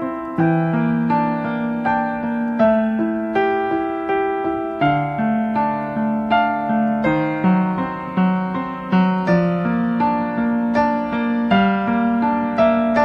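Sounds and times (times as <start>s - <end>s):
keyboard playing slow melody: 0.0s - 13.0s.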